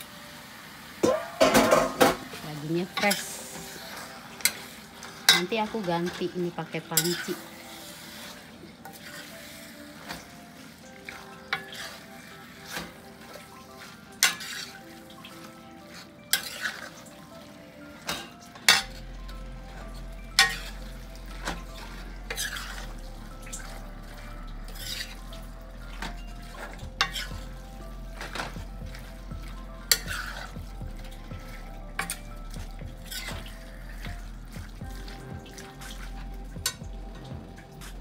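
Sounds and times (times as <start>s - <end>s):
meat sizzling in a pan: 0.0s - 38.0s
metal spoon clanking on pan: 1.0s - 2.3s, 6.9s - 7.4s, 14.2s - 14.7s, 18.0s - 19.0s, 20.4s - 20.8s, 27.0s - 27.3s, 29.9s - 30.4s.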